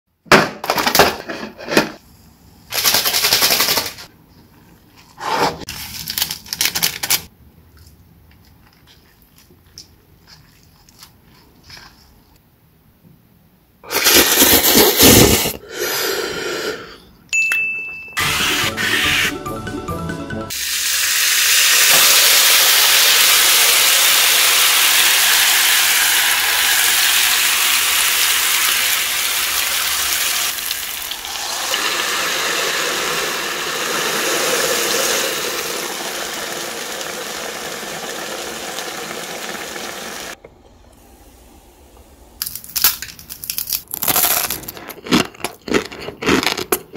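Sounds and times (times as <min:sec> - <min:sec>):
fried noodles crackling apart: 0:05.7 - 0:07.3
noodles sizzling in waffle maker: 0:20.5 - 0:40.4.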